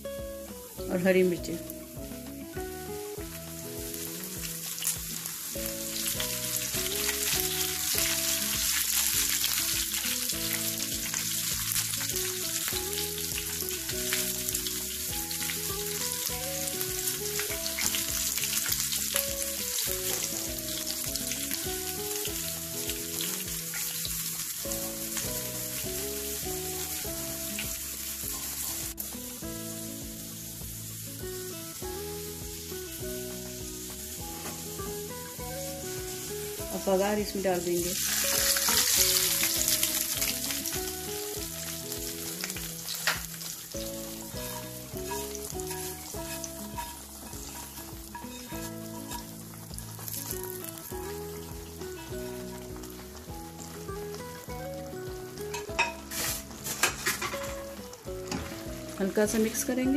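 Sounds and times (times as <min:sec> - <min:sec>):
background music: 0:00.0 - 0:59.9
hot oil sizzling and crackling: 0:00.0 - 0:59.9
spatula stirring pan: 0:38.0 - 0:54.2.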